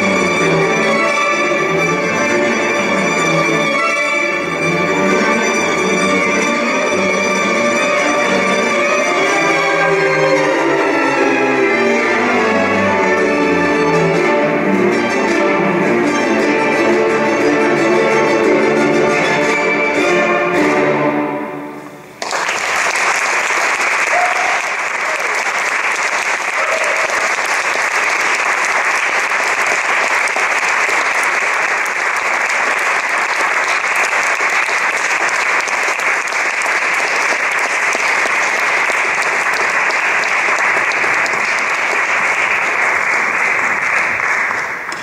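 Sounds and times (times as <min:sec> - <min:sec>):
audience applauding: 0:22.2 - 0:45.0.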